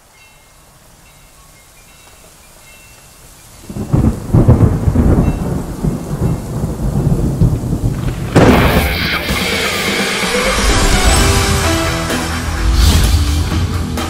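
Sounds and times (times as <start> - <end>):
rain: 0.0 - 14.0
rolling thunder: 3.7 - 13.7
sharp thunder crash: 3.9 - 13.9.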